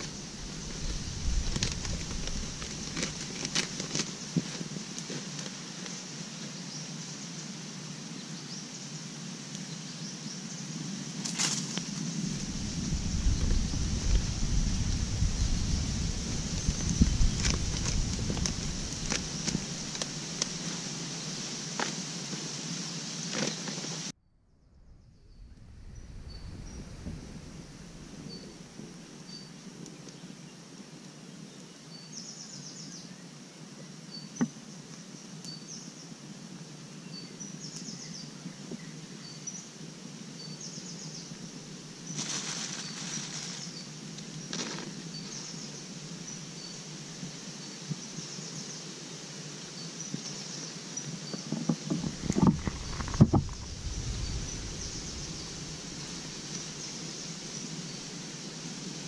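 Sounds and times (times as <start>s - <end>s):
insects chirping in trills: 0.0s - 59.0s
outdoor background noise: 0.0s - 59.0s
low bumps: 24.3s - 28.9s, 51.4s - 57.6s.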